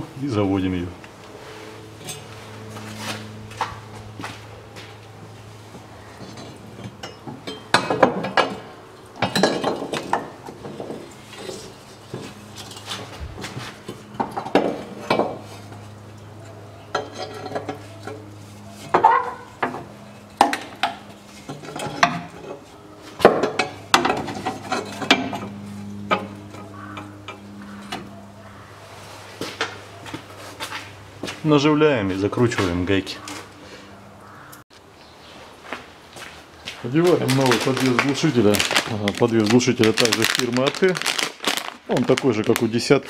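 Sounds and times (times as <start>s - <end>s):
steady low hum: 0.0s - 39.9s
metal pipe clanking and scraping: 1.9s - 3.6s, 6.1s - 28.2s.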